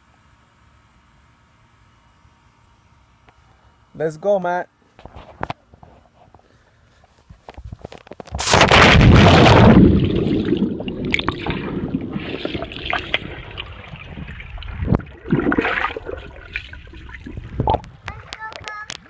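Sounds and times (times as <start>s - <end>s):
loud splash into pool: 8.4s - 17.4s
water swirling: 8.4s - 18.0s
muffled underwater gurgling: 9.2s - 18.7s.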